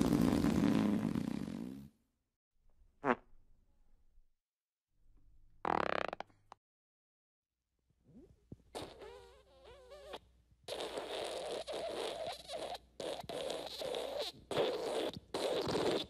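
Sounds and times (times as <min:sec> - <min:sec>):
fart sound effects: 0:00.0 - 0:02.0, 0:03.0 - 0:03.3, 0:05.6 - 0:06.4, 0:08.1 - 0:16.0.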